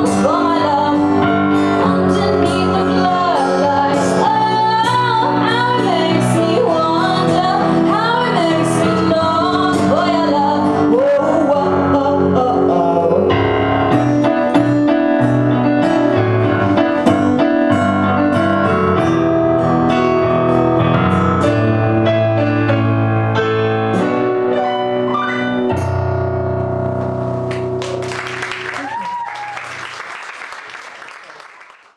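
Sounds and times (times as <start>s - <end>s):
woman singing: 0.0s - 13.1s
acoustic guitar: 0.0s - 28.9s
keyboard playing piano: 0.0s - 28.9s.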